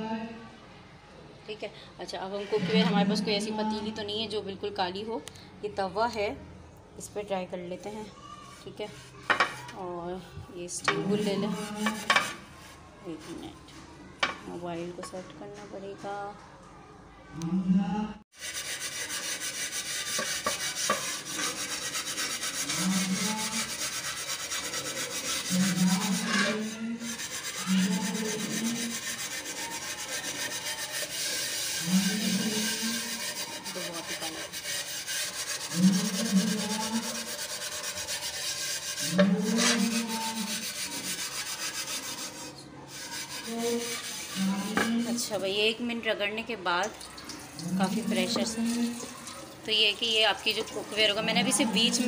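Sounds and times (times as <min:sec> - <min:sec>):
steel wool scrubbing metal griddle: 0:10.9 - 0:13.4, 0:18.4 - 0:45.5, 0:47.4 - 0:52.0.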